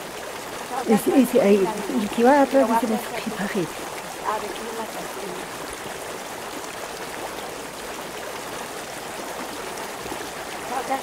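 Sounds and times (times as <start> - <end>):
stream water running: 0.0 - 11.0.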